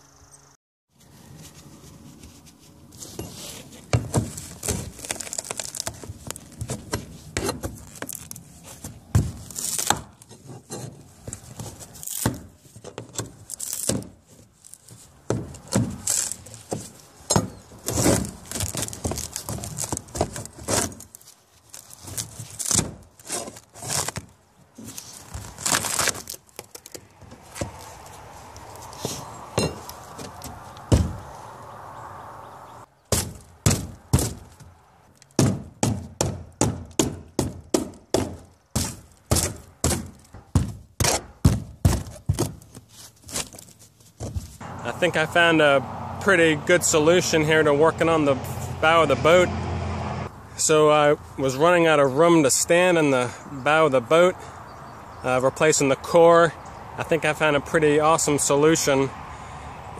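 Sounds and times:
pry bar scraping: 1.3 - 31.3, 33.1 - 44.7
fiberglass cracking and tearing: 4.2 - 6.9, 7.7 - 8.5, 9.3 - 10.3, 11.9 - 12.4, 13.3 - 15.0, 15.6 - 16.7, 17.8 - 29.0.

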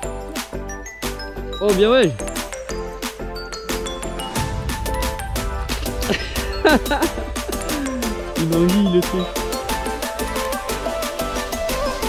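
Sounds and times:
background music with steady beat: 0.0 - 12.0
heavy bass line: 4.2 - 10.9.

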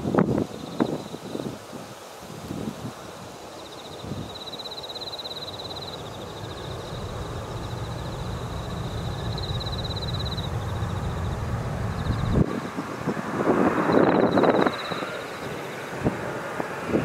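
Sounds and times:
wind gusts on microphone: 0.0 - 17.0
jet engines rumbling: 2.9 - 17.0
high pulsing trill: 5.6 - 12.4.

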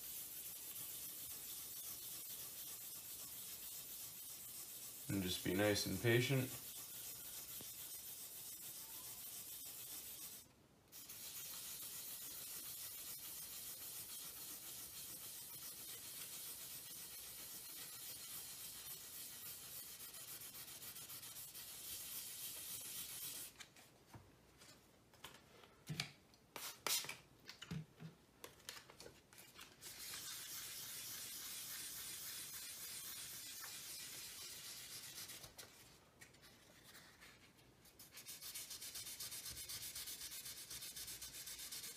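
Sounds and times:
wet sanding hiss: 0.0 - 23.5, 30.0 - 35.3.

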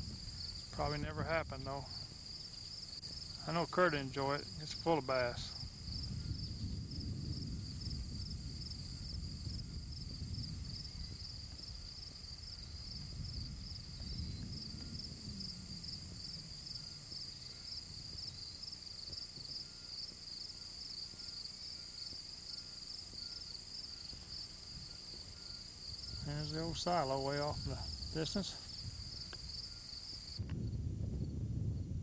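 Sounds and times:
insects chirping rhythmically: 0.0 - 31.4
low rumbling noise: 4.4 - 18.2, 30.4 - 32.0.

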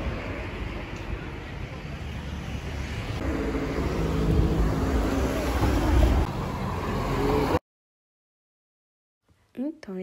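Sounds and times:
car passing close by: 3.0 - 7.6.

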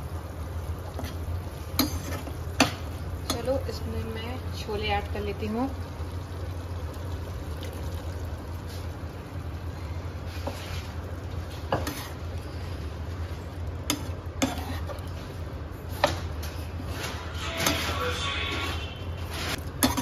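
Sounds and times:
spatula scraping a frying pan: 1.8 - 3.5, 10.3 - 12.3, 13.9 - 15.2, 15.9 - 20.0.

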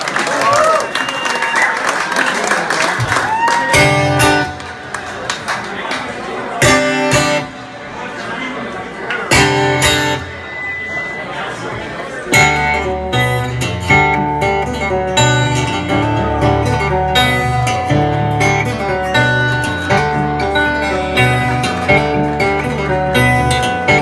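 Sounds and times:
acoustic guitar plucked melody: 3.7 - 4.9, 6.6 - 7.8, 9.2 - 10.8, 12.3 - 24.0.

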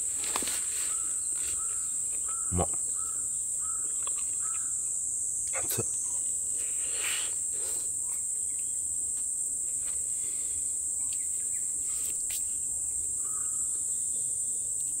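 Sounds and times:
crickets chirping: 0.0 - 15.0.

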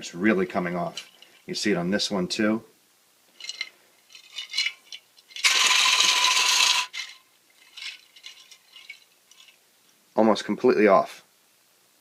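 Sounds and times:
plastic parts clattering in glass jar: 3.4 - 9.6.

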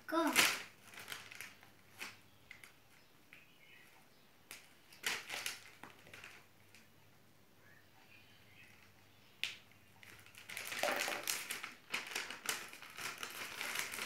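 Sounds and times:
plastic packet crinkling: 0.2 - 2.8, 4.5 - 6.5, 10.0 - 14.0.

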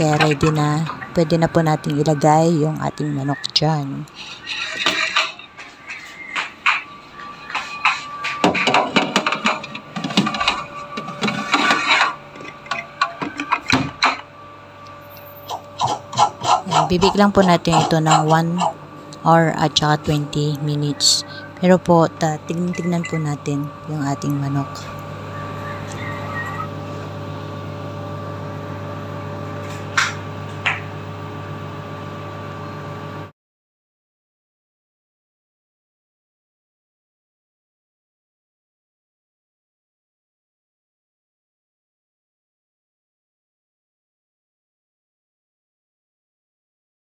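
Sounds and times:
oven electric hum: 0.0 - 33.3
metal tray clattering and scraping: 4.4 - 5.4, 8.4 - 14.1.

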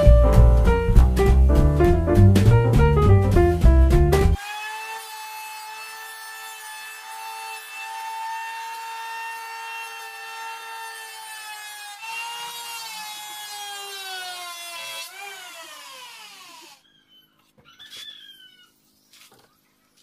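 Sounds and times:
electric planer shaving wood: 4.4 - 16.8.

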